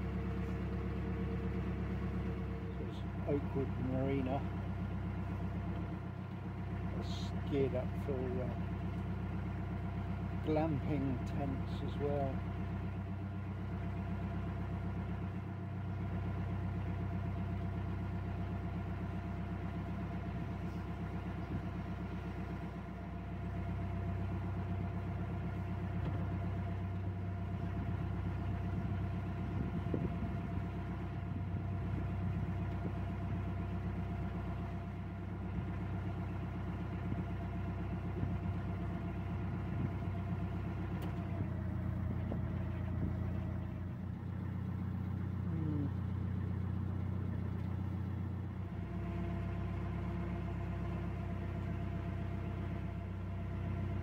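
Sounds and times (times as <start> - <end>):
boat diesel engine chugging: 0.0 - 54.0.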